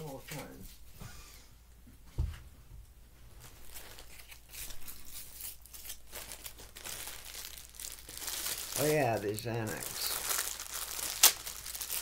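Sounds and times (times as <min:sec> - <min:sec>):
thump: 0:02.1 - 0:02.4
crinkling and rustling: 0:03.2 - 0:12.0.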